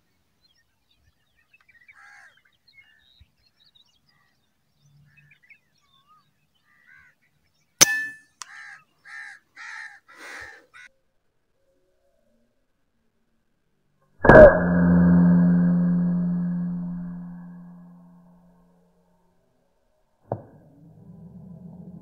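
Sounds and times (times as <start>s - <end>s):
crow cawing: 2.0s - 2.4s, 8.4s - 10.9s
sharp crack with ring: 7.8s - 8.5s, 14.2s - 18.2s.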